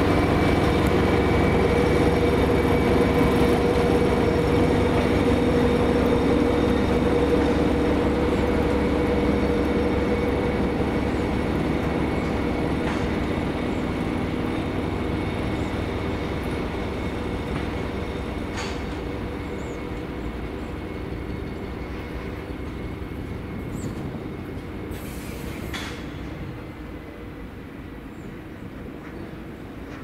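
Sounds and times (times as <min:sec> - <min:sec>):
diesel locomotive engine running: 0:00.0 - 0:30.0.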